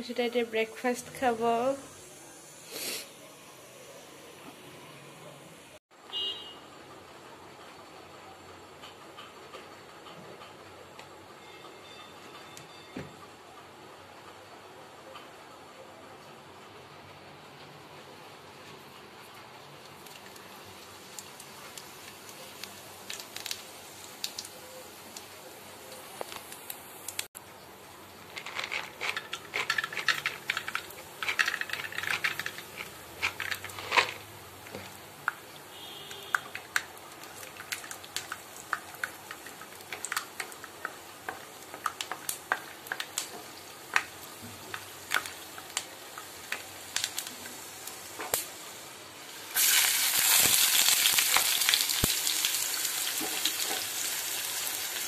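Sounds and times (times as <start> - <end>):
onions sizzling in oil: 0.0 - 4.3, 19.8 - 27.3, 29.8 - 55.0
seeds frying in hot oil: 0.0 - 4.9, 18.1 - 55.0.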